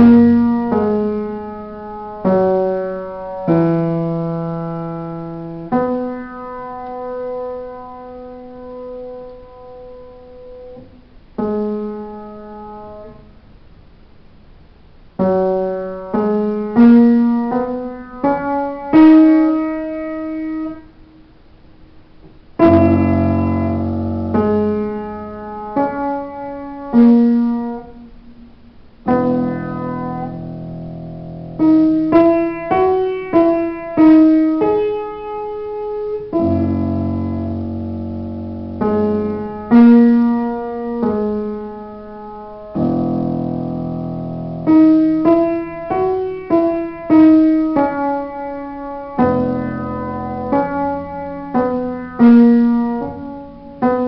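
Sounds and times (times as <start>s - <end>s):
piano melody: 0.0s - 13.5s, 14.6s - 54.0s
low piano chords: 0.0s - 54.0s.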